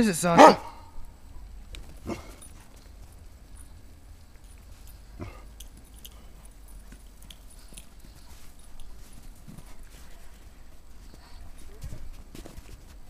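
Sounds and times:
dog barking: 0.4 - 0.9.

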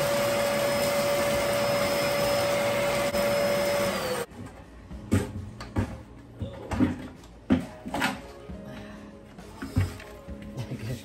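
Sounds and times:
vacuum motor whining: 0.0 - 4.3.

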